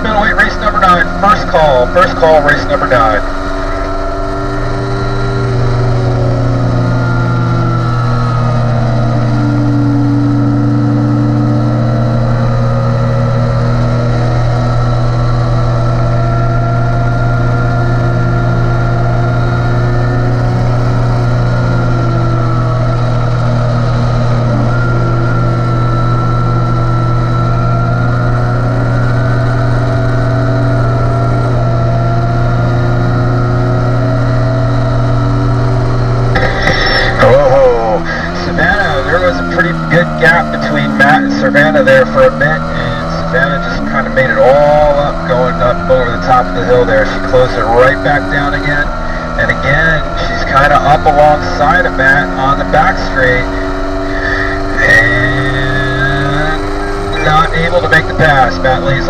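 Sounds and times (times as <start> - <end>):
motorcycle engine running hard: 0.0 - 59.0.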